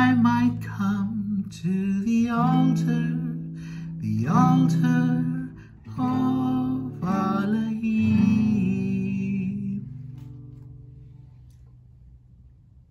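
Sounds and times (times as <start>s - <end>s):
person singing: 0.0s - 10.0s
acoustic guitar strumming: 0.0s - 11.5s.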